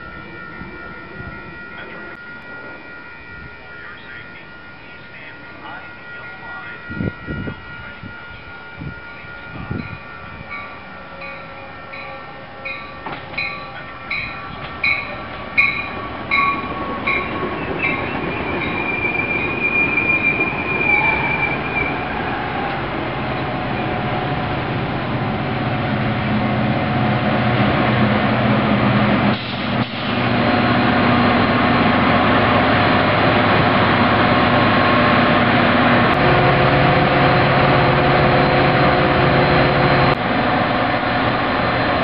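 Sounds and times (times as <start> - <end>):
warning bell ringing: 0.0 - 19.7
train rumble: 0.0 - 42.0.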